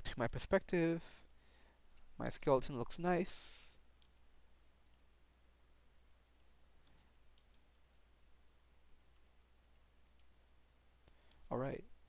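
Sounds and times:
low electrical hum: 0:00.0 - 0:12.0
computer mouse clicks: 0:04.0 - 0:05.1, 0:06.0 - 0:08.2, 0:09.0 - 0:10.3, 0:10.9 - 0:11.6.

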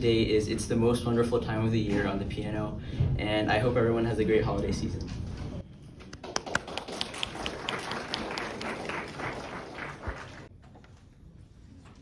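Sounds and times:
audience applauding: 0:06.2 - 0:10.5.

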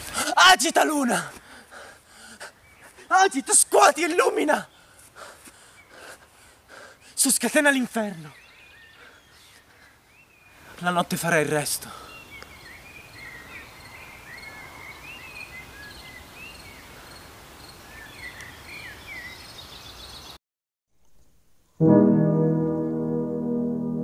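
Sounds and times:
crickets chirping: 0:15.9 - 0:17.9
sustained musical chord: 0:21.8 - 0:24.0.

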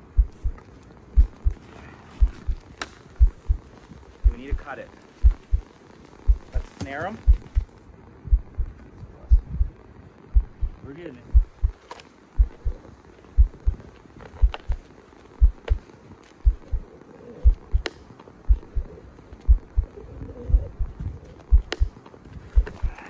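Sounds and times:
heartbeat thumps: 0:00.0 - 0:01.6, 0:02.2 - 0:11.8, 0:12.4 - 0:13.8, 0:14.4 - 0:15.8, 0:16.4 - 0:17.9, 0:18.5 - 0:23.0
faint sharp clicks: 0:21.6 - 0:22.0.

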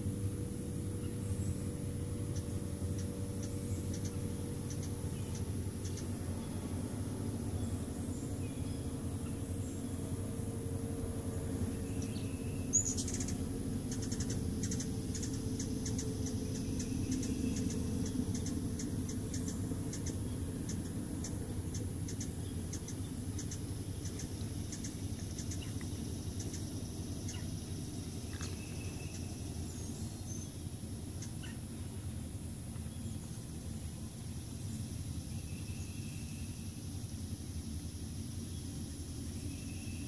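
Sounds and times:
insect drone: 0:00.0 - 0:40.0
bird chirps: 0:00.9 - 0:06.7, 0:11.7 - 0:31.8, 0:34.6 - 0:36.9, 0:38.4 - 0:40.0.

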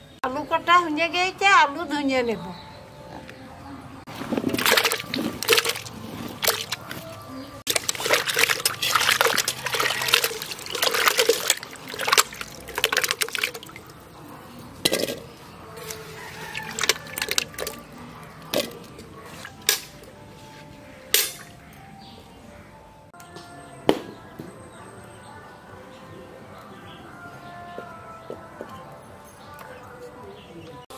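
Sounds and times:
water being poured off: 0:04.1 - 0:06.8, 0:07.7 - 0:14.1, 0:15.8 - 0:17.9
water splashing in a metal pot: 0:04.1 - 0:06.9, 0:07.7 - 0:20.0.

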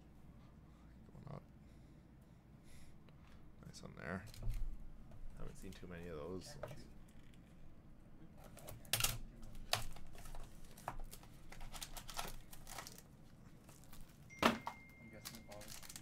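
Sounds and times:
shrink wrap crinkling and tearing: 0:08.5 - 0:14.3, 0:15.2 - 0:16.0.

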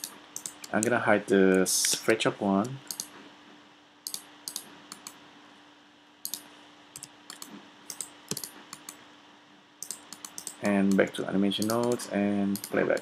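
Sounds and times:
computer keyboard keys clicking: 0:00.0 - 0:00.9, 0:02.6 - 0:03.1, 0:04.1 - 0:05.2, 0:07.0 - 0:09.0, 0:09.8 - 0:13.0
mouse buttons clicking: 0:00.0 - 0:00.9, 0:04.1 - 0:05.2, 0:06.2 - 0:09.0, 0:09.8 - 0:13.0
faint steady hum: 0:00.0 - 0:13.0.

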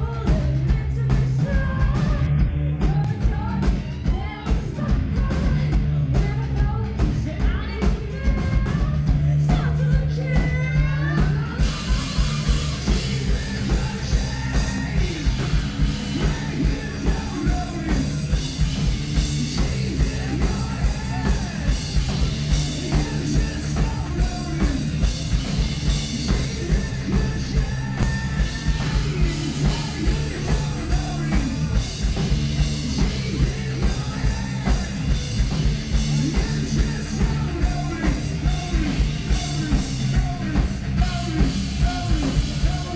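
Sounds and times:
drums: 0:00.0 - 0:42.9
electric guitar: 0:00.0 - 0:42.9
person singing: 0:00.0 - 0:42.9.

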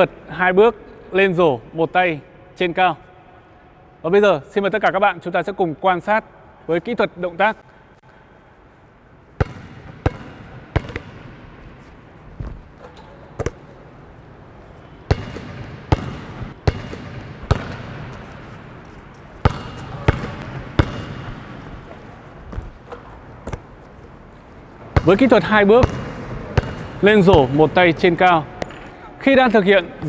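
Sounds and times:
basketball bouncing on gym floor: 0:09.4 - 0:11.4, 0:12.4 - 0:13.7, 0:15.1 - 0:18.4, 0:19.4 - 0:23.7, 0:24.9 - 0:27.8.

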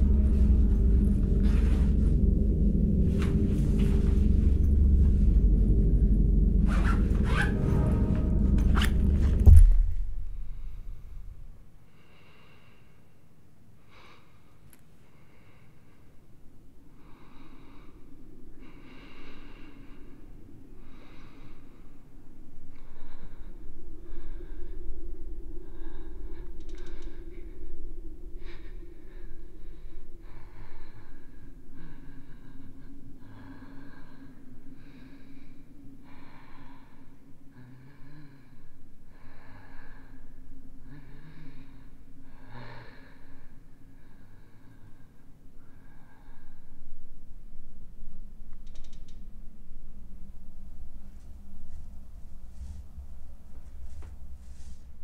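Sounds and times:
loud low rumble: 0:00.0 - 0:12.3, 0:17.1 - 0:45.1, 0:46.3 - 0:55.0
woman breathing heavily: 0:00.0 - 0:47.3, 0:50.0 - 0:55.0
low steady drone: 0:00.0 - 0:55.0
heavy thump: 0:07.0 - 0:11.5
soft breaths through nose: 0:50.3 - 0:55.0.

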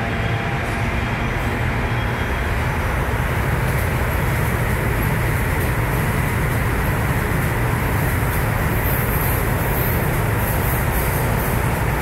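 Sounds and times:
subway train rumbling on track: 0:00.0 - 0:12.0.

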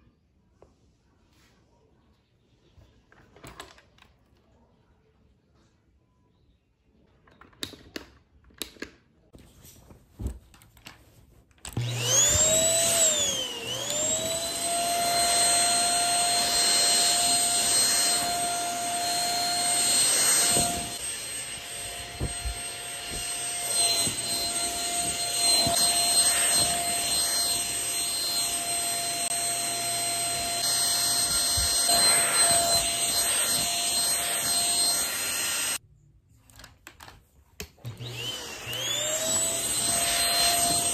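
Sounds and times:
vacuum cleaner motor whining: 0:11.7 - 0:35.8, 0:37.8 - 0:40.9.

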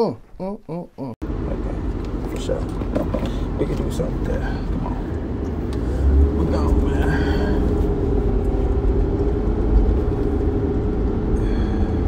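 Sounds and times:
car engine driving off: 0:01.3 - 0:12.0.

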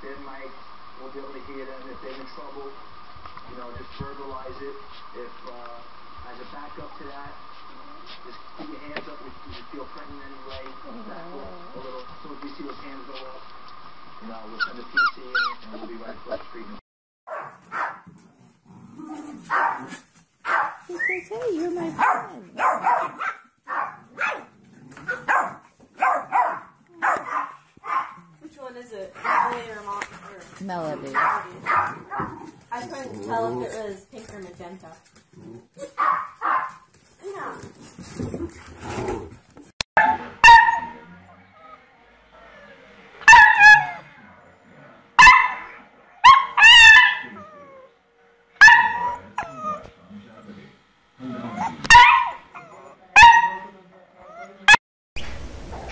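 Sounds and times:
puppy barking in sharp yaps: 0:17.3 - 0:18.1, 0:19.5 - 0:20.8, 0:22.0 - 0:24.5, 0:25.1 - 0:28.2, 0:29.2 - 0:29.6, 0:35.8 - 0:36.8, 0:40.0 - 0:41.0, 0:43.3 - 0:44.0, 0:45.2 - 0:47.3, 0:48.6 - 0:49.8, 0:51.9 - 0:52.4, 0:53.2 - 0:53.7.

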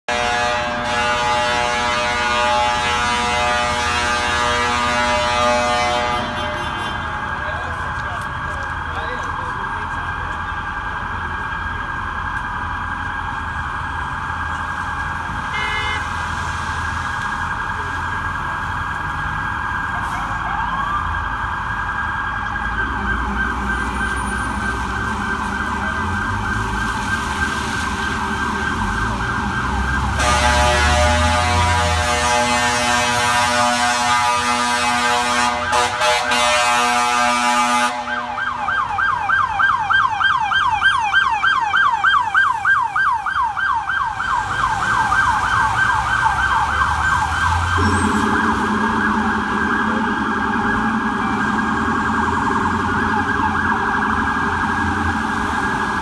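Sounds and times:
truck air horn blast: 0:00.1 - 0:07.3, 0:15.4 - 0:16.3, 0:30.2 - 0:38.4
siren sweeping: 0:00.1 - 0:56.0
street traffic rumble: 0:00.1 - 0:56.0.

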